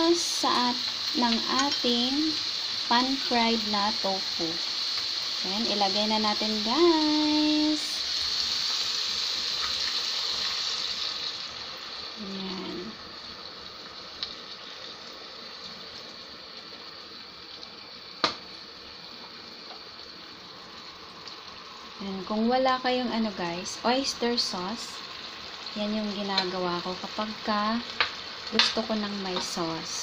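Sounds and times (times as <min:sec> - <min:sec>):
food sizzling in a pan: 0:00.0 - 0:30.0.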